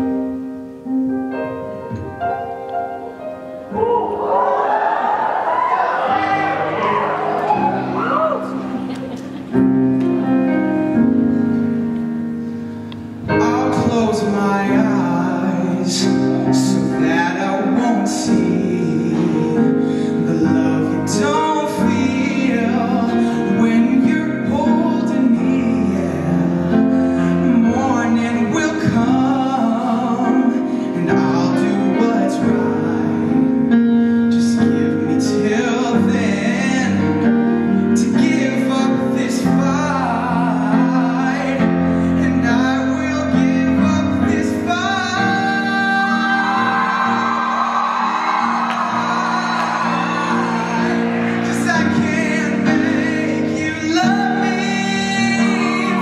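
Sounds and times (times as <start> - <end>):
grand piano ballad accompaniment: 0.0 - 56.0
man singing: 13.2 - 56.0.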